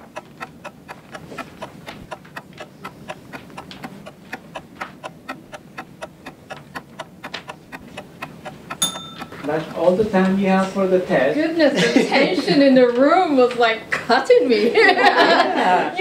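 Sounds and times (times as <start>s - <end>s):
clock ticking fast: 0.0s - 10.8s.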